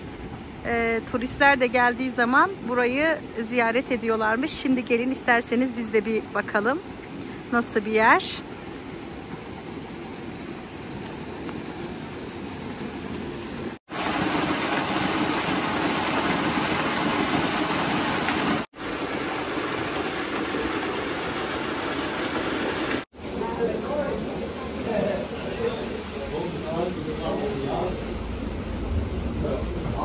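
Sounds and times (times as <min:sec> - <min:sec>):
water rushing onto water wheel: 0:00.0 - 0:30.0.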